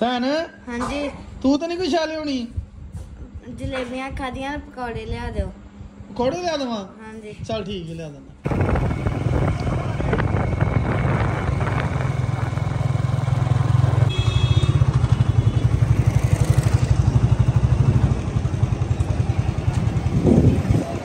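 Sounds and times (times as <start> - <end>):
motorcycle engine running: 8.4 - 21.0.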